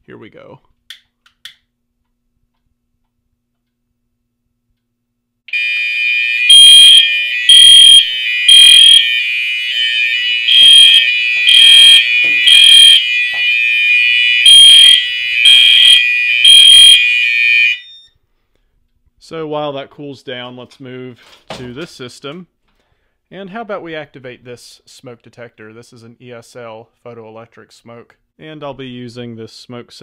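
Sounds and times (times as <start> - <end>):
pulsing fire alarm horn: 5.5 - 18.1
steady fire alarm horn tone: 5.5 - 18.1.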